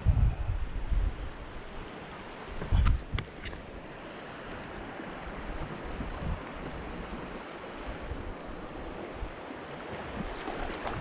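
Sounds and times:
wind thumps on microphone: 0:00.0 - 0:01.4, 0:02.5 - 0:03.3, 0:05.5 - 0:07.0, 0:10.0 - 0:11.0
river water flowing: 0:00.7 - 0:11.0.

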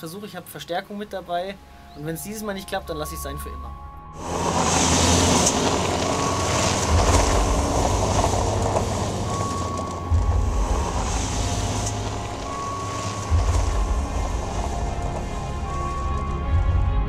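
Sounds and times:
tyres crunching on gravel: 0:04.2 - 0:16.8
van driving past: 0:04.2 - 0:17.0.

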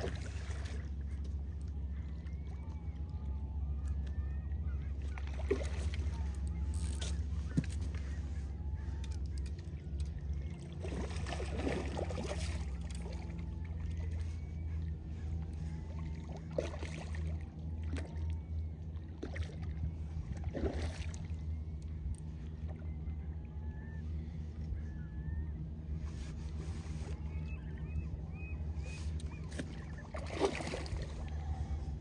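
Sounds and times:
steady low drone: 0:00.0 - 0:32.0
fish splashing in water: 0:05.1 - 0:06.1, 0:10.8 - 0:13.3, 0:16.1 - 0:18.2, 0:20.4 - 0:21.3, 0:29.5 - 0:31.4.

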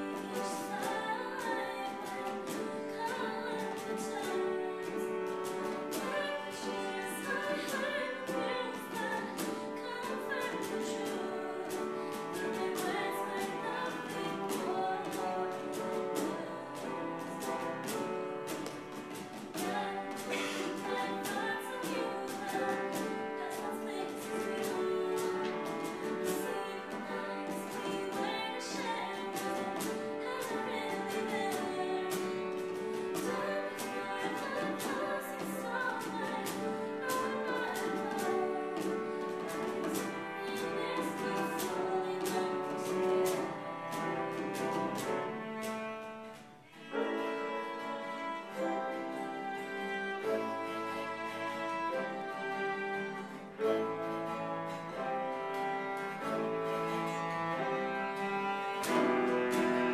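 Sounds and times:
acoustic guitar: 0:00.0 - 0:59.9
cajon and bongos beat: 0:00.0 - 0:59.9
cello: 0:00.0 - 0:59.9
piano: 0:00.0 - 0:59.9.

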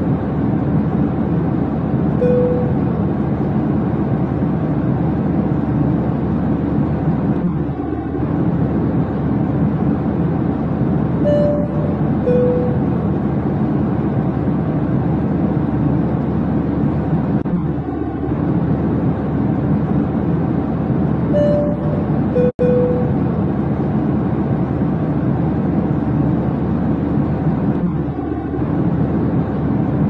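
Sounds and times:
airliner engine rumble: 0:00.0 - 0:30.0
short high tones: 0:02.2 - 0:03.0, 0:11.2 - 0:13.0, 0:21.3 - 0:23.3.

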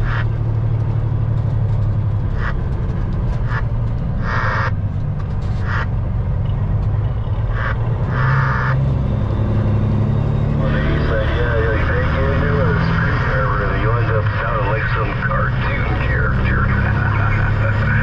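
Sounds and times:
diesel engine running: 0:00.0 - 0:18.0
radio static bursts: 0:10.6 - 0:18.0.

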